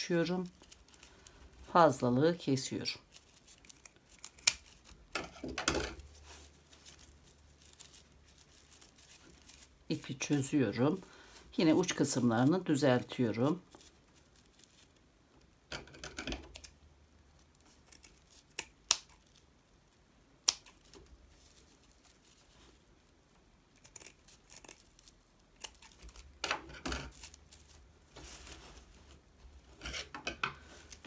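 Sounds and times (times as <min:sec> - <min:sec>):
paper yarn rustling: 0:00.0 - 0:31.0
scissors snipping: 0:20.4 - 0:20.9.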